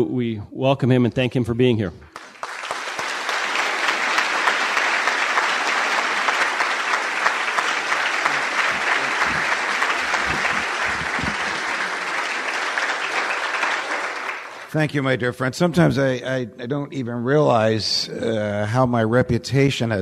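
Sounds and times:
audience clapping: 0:02.1 - 0:15.1.

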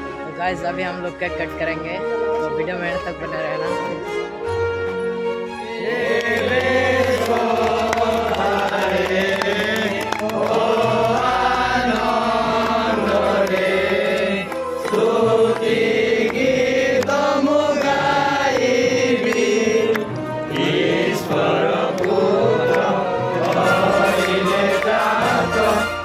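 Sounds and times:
people singing: 0:05.6 - 0:26.0.

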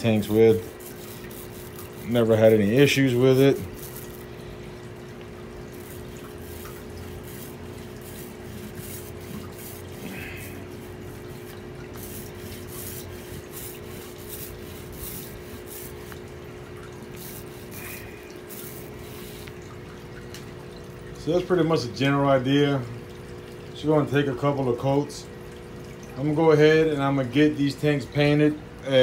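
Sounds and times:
paint roller on glass: 0:00.0 - 0:04.3, 0:05.6 - 0:16.3, 0:16.9 - 0:19.6
steady low hum: 0:00.0 - 0:22.2.

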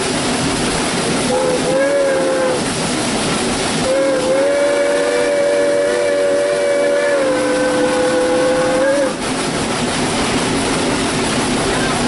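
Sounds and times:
steam engine hiss and running: 0:00.0 - 0:12.0
steam whistle blast: 0:01.2 - 0:02.7, 0:03.8 - 0:09.2.

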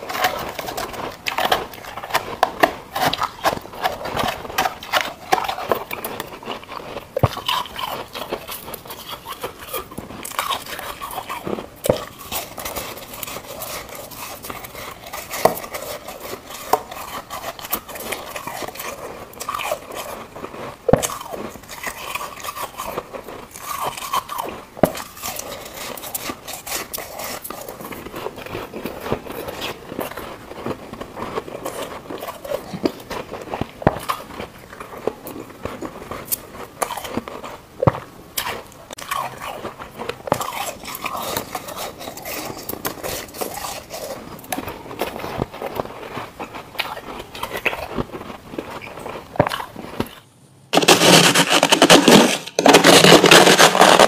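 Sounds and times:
chewing ice: 0:00.0 - 0:50.9
ice crunching and crackling: 0:50.7 - 0:54.0.

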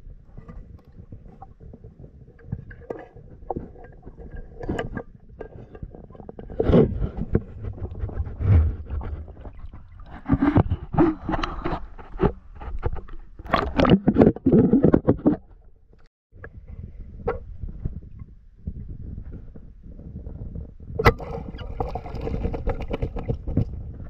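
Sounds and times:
muffled water sloshing: 0:00.0 - 0:16.0
camera knocking underwater: 0:00.4 - 0:15.7, 0:21.0 - 0:23.9.

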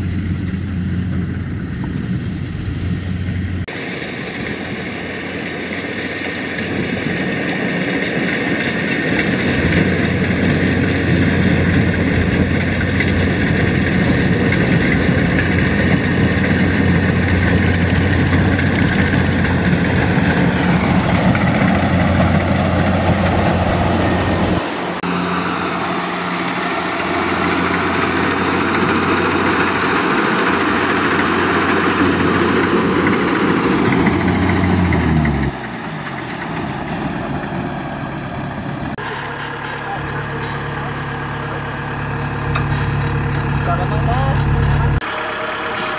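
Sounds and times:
combine harvester engine humming: 0:00.0 - 0:45.9.

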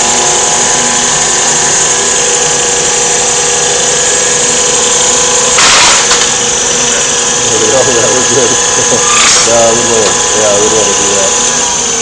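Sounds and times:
floor sander whining: 0:00.0 - 0:12.0.

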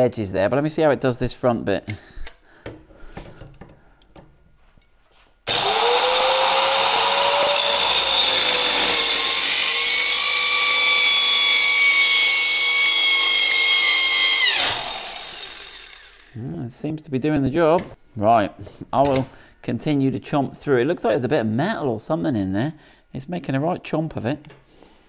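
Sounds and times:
circular saw whining: 0:05.5 - 0:16.4.

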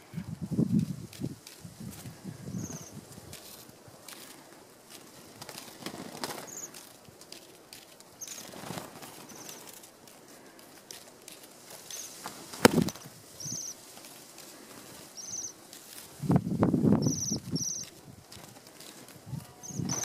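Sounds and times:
wing flutters and rustling: 0:00.0 - 0:20.0
birds high trilling calls: 0:02.3 - 0:03.0, 0:06.0 - 0:06.8, 0:08.2 - 0:09.7, 0:11.9 - 0:12.2, 0:12.8 - 0:13.8, 0:15.1 - 0:15.6, 0:16.9 - 0:18.0, 0:19.3 - 0:20.0.

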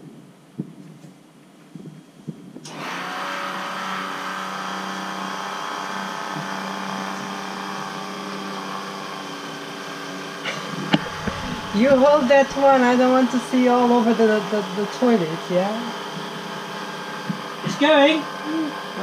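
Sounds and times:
electric pump motor hum: 0:02.6 - 0:19.0.

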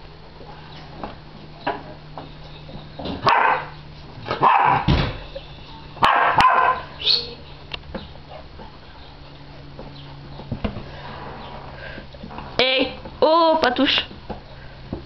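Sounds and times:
puppies play-barking: 0:02.5 - 0:07.6
high yip: 0:03.3 - 0:03.6, 0:06.0 - 0:07.3.

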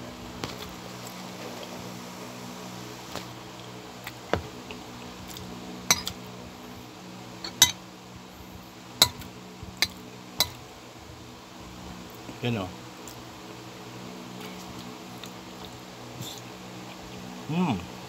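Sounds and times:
cutlery clinking on ceramic plate: 0:05.9 - 0:06.2, 0:07.4 - 0:07.8, 0:09.8 - 0:10.6.

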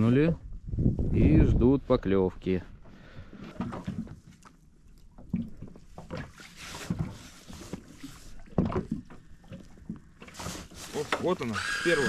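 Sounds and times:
water slapping against a hull: 0:02.8 - 0:11.6.

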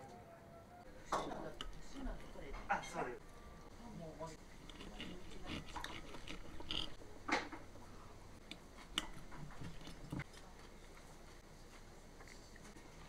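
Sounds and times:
knife scraping on plate: 0:04.6 - 0:07.0.

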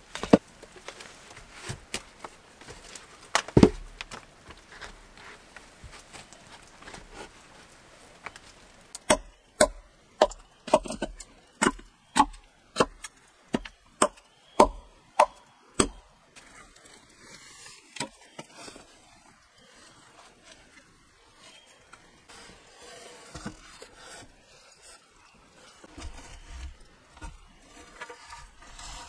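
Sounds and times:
hatchet chopping wood: 0:09.0 - 0:16.0.

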